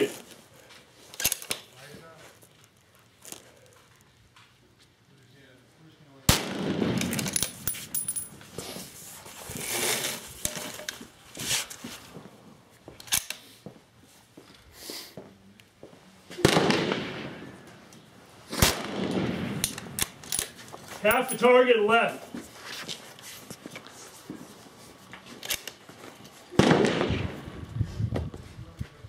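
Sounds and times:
rifle shots: 6.3s - 7.4s, 16.4s - 17.4s, 18.5s - 20.2s, 26.6s - 27.4s.

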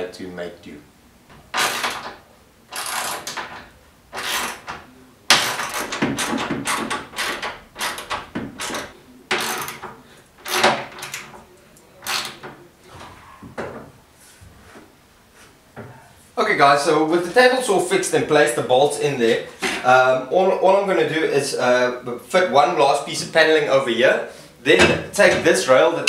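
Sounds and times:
wood and metal scraping: 1.3s - 15.9s.

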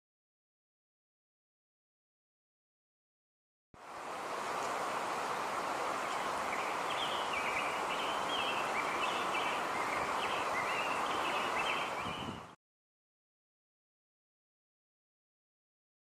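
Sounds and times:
steady outdoor hiss: 3.8s - 12.6s
bird chirping: 5.9s - 12.6s.

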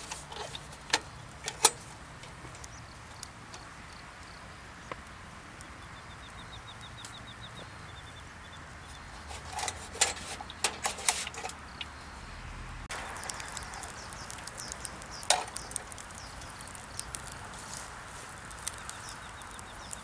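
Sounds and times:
low outdoor background: 0.0s - 20.0s
small bird trill: 5.6s - 9.3s, 13.1s - 17.8s, 18.5s - 20.0s.

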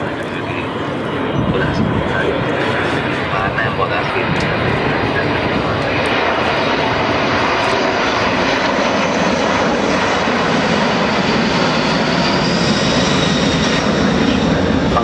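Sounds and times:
faint high engine whine: 0.0s - 15.0s
jet engines roaring overhead: 0.0s - 15.0s.

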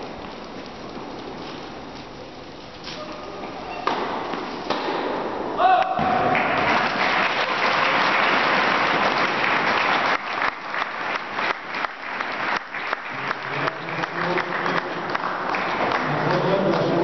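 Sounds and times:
spectators applauding: 6.2s - 17.0s.

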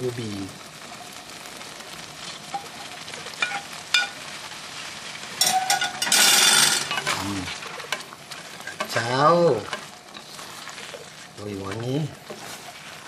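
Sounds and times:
sizzling and stirring in a wok: 0.0s - 13.0s
spatula tapping: 3.4s - 4.2s
wooden spatula scraping a plate: 5.5s - 13.0s.

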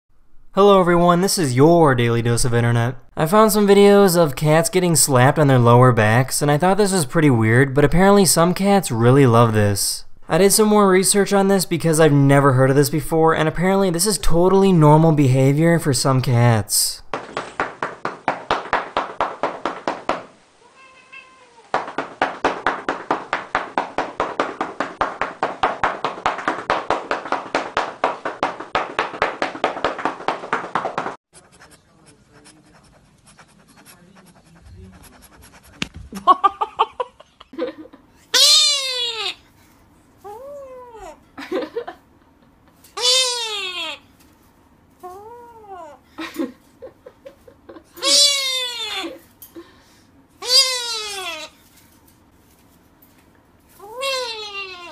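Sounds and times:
rapid pats on a cat: 17.1s - 20.4s, 21.6s - 31.2s, 35.6s - 36.2s
cat meowing: 20.6s - 21.7s, 48.0s - 49.1s, 50.4s - 51.5s, 53.8s - 54.9s.

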